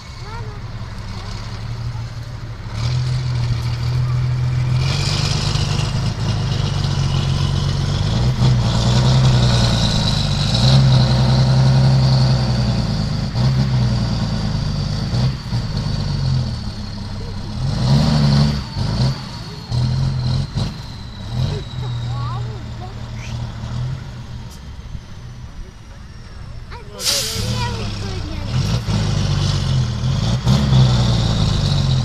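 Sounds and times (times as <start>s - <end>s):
diesel truck engine revving: 0.0s - 32.0s.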